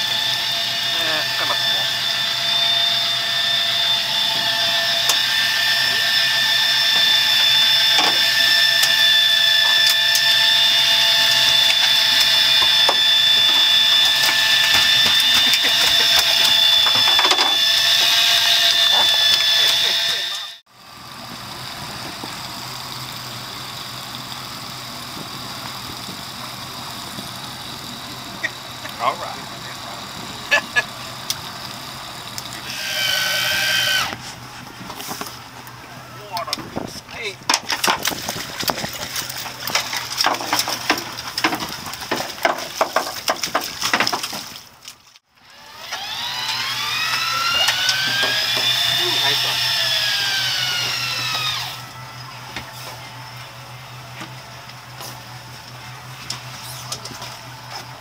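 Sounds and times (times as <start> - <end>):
electric fishing reel motor whine: 0.0 - 36.6, 45.3 - 58.0
boat engine idling: 0.0 - 44.8.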